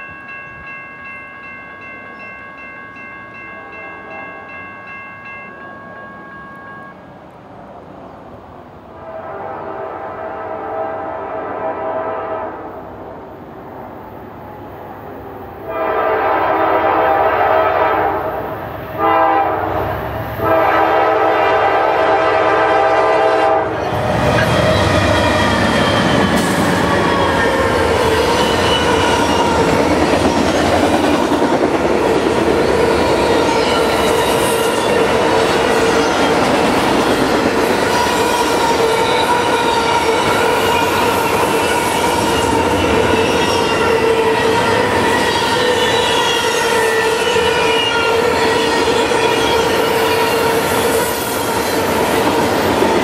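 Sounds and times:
locomotive horn blasts: 9.0 - 12.7, 15.7 - 18.4, 19.0 - 19.8, 20.4 - 25.1
train wheels clacking and squealing: 23.8 - 53.0.

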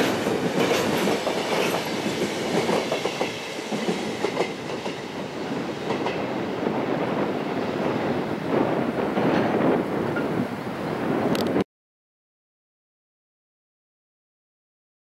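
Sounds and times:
train wheels clicking over rail joints: 0.0 - 6.3.

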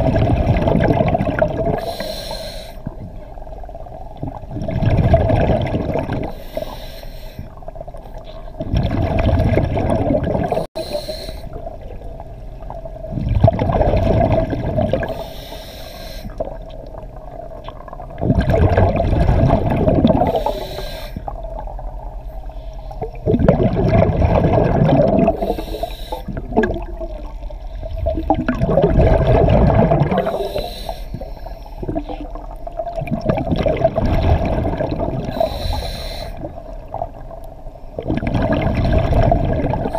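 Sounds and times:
exhaled bubbles: 0.0 - 6.8, 7.5 - 15.5, 16.2 - 39.9
diver breathing through regulator: 1.8 - 2.9, 6.2 - 7.6, 10.7 - 11.6, 15.0 - 16.6, 20.2 - 21.4, 25.3 - 26.4, 30.1 - 32.3, 35.2 - 36.6.

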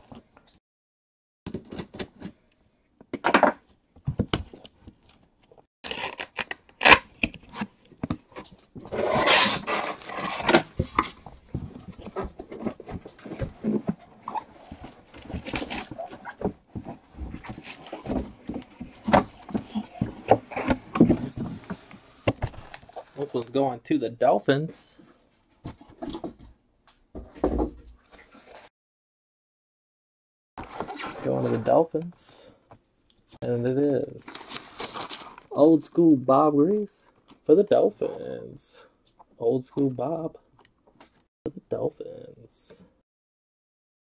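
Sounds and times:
cardboard scraping and sliding: 8.8 - 23.2.

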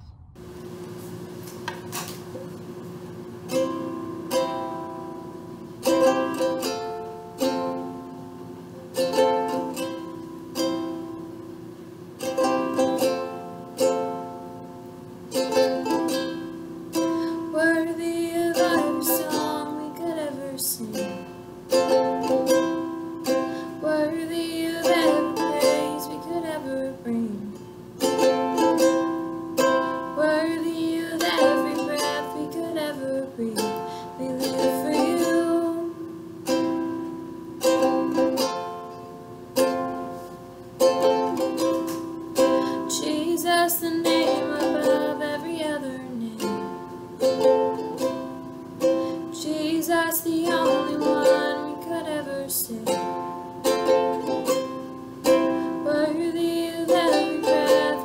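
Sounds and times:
ukulele strumming: 3.4 - 58.0.

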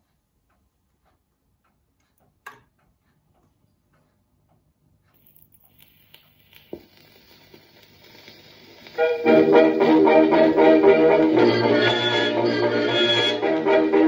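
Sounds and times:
record player ticks and click: 0.0 - 11.7
vinyl record crackle and hiss: 5.2 - 14.0.

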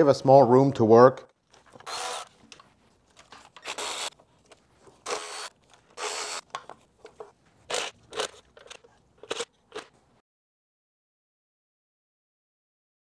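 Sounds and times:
cordless power tool spinning: 1.7 - 2.4, 3.5 - 4.2, 5.0 - 6.5, 7.7 - 9.5.

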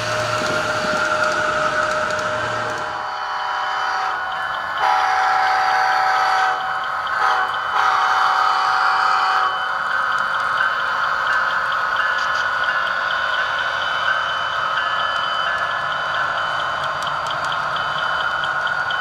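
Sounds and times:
locomotive engine: 0.0 - 19.0
locomotive air horn blasts: 3.0 - 4.2, 4.8 - 6.6, 7.2 - 9.5
crossing bell ticking: 4.0 - 19.0.

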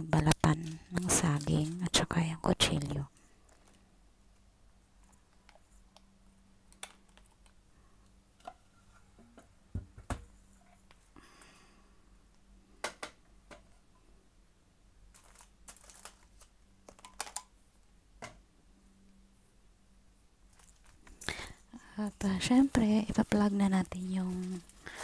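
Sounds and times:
low steady hum: 0.0 - 25.0
small objects clicking and knocking: 6.7 - 7.6, 15.1 - 17.5.

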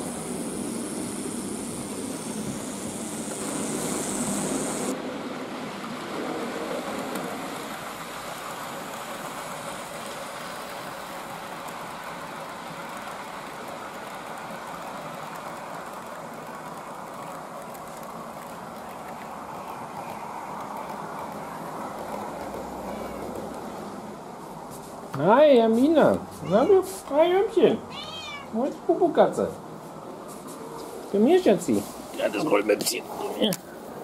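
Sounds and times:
high hiss: 0.0 - 5.0
model train running on track: 0.0 - 24.4.

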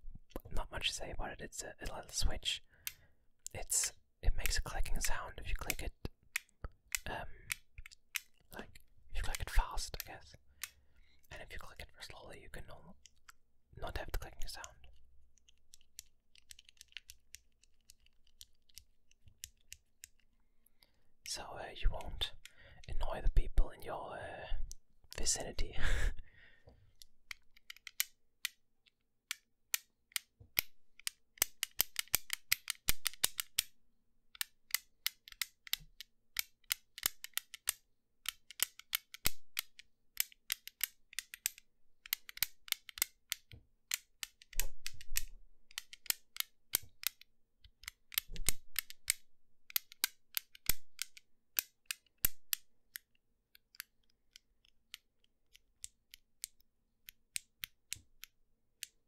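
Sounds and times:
fidget cube switch clicks: 5.6 - 8.8, 27.3 - 28.6, 29.3 - 33.7, 34.3 - 59.0.

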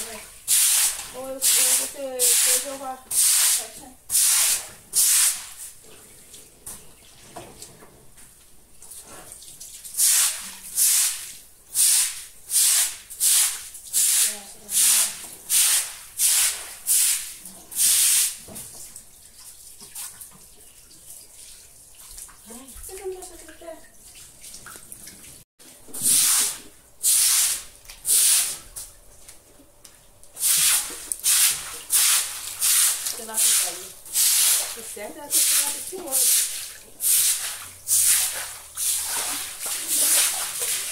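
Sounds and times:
stiff broom scrubbing wet concrete: 0.0 - 5.8, 9.0 - 18.4, 26.0 - 28.8, 30.4 - 40.9
faint running water: 0.0 - 12.4, 13.0 - 26.9, 27.6 - 40.9.

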